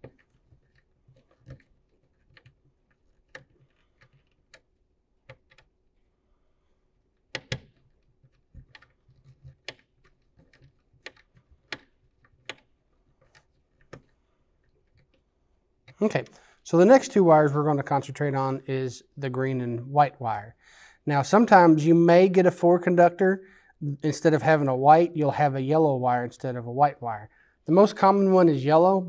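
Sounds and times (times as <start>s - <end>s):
screwdriver clicking and tapping: 7.3s - 12.7s.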